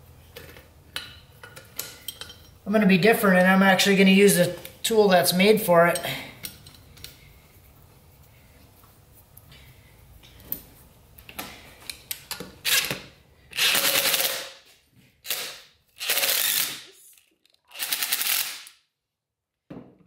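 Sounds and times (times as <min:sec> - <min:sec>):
cordless driver bursts: 0:15.3 - 0:16.9.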